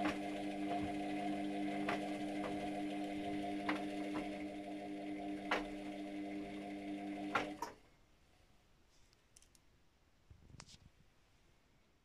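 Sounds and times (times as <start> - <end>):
washing machine motor humming: 0.0 - 7.7.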